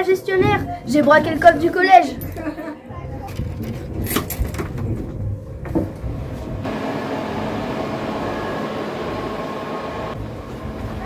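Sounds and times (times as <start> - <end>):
server cooling fans whirring: 4.7 - 11.0.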